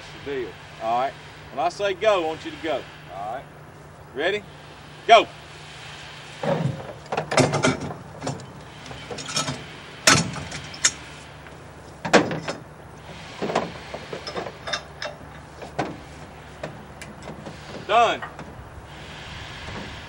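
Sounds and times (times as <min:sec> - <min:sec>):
ratchet straps tightening: 0:12.5 - 0:19.1
metal clicks and rattles: 0:13.5 - 0:15.9.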